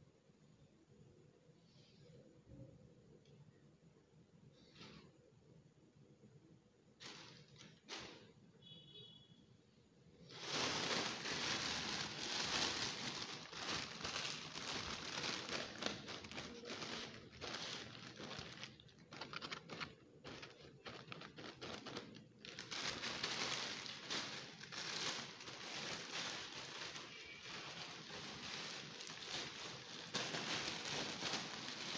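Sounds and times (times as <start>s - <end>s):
foil balloon crinkling: 10.2s - 31.9s.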